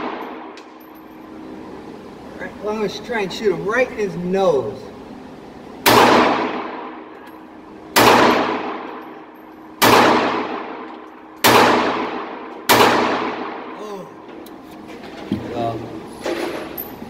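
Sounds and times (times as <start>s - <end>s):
pistol shots with echo: 0.0s - 0.6s, 5.8s - 7.1s, 7.9s - 9.0s, 9.8s - 13.8s.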